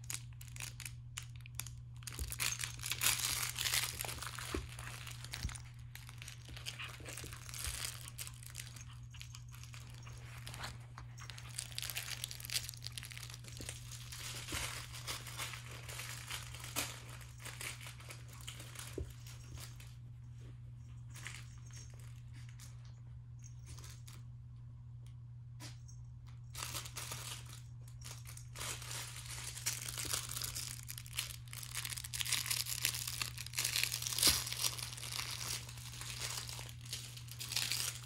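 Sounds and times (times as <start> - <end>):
crinkly dog toy rustling: 0.0 - 24.3, 26.3 - 38.0.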